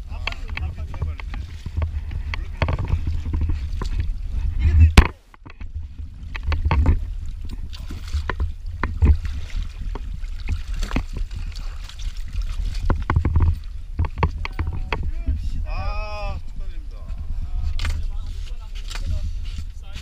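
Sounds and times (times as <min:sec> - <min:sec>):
steady low rumble: 0:00.0 - 0:20.0
water splashing against boat hull: 0:00.0 - 0:20.0.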